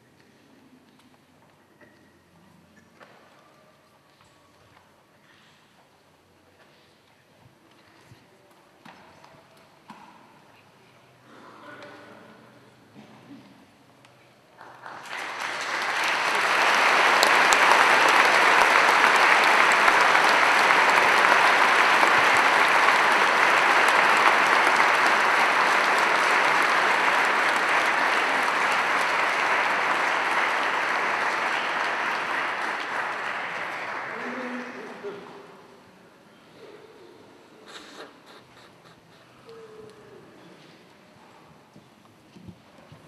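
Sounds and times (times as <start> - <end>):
crowd applauding: 14.6 - 35.2.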